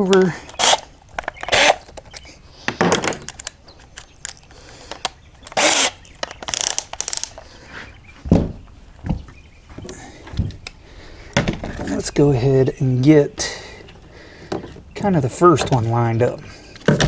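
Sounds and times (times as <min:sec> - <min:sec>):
plastic scraping and clicking: 0:00.0 - 0:07.5.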